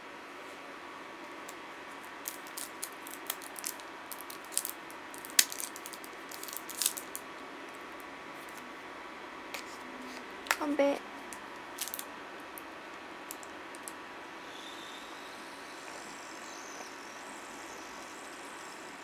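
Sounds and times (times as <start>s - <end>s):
steady low hiss: 0.0s - 19.0s
snack packaging crinkling: 2.0s - 7.3s, 11.3s - 12.7s.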